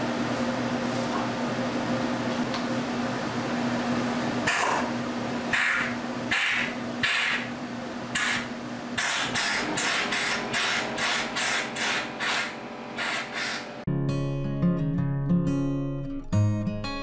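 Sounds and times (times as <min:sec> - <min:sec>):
steady hum: 0:00.0 - 0:13.9
air blow gun blasts: 0:08.1 - 0:13.7.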